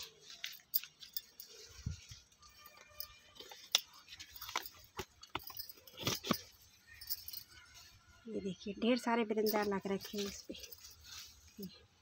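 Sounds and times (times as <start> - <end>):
plant stems clicking and crackling: 0.0 - 7.8
leaves rustling: 0.0 - 12.0.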